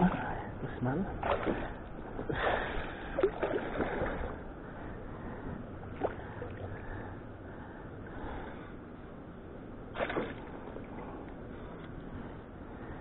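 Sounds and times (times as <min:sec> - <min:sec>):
water splashing and sloshing: 0:00.0 - 0:07.1, 0:09.8 - 0:12.0
sharp splashes or knocks: 0:01.2 - 0:01.7, 0:10.0 - 0:10.4.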